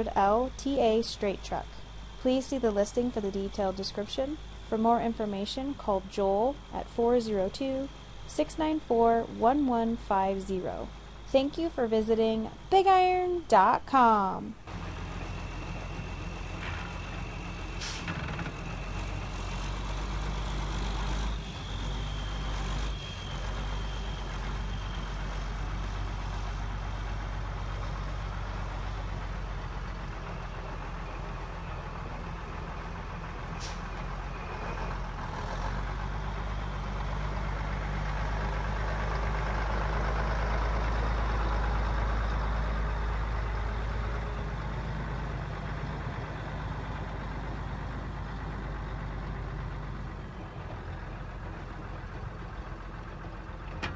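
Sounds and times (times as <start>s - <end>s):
diesel truck engine idling: 14.6s - 53.9s.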